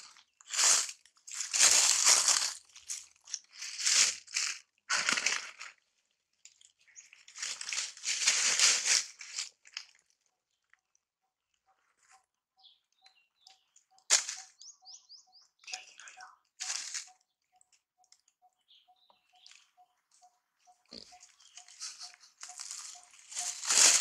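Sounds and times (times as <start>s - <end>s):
dry leaves crunching: 0.1s - 5.8s, 6.6s - 10.0s, 14.0s - 14.7s, 16.6s - 17.2s, 20.8s - 24.0s.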